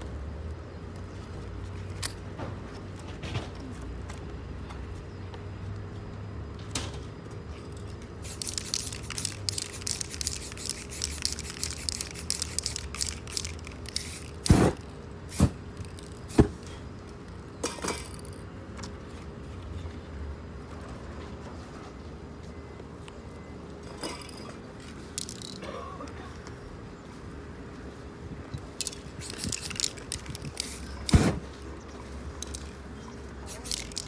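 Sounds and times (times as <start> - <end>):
spray paint can hissing: 8.2 - 16.5, 28.8 - 31.4, 32.4 - 32.7, 33.4 - 34.0.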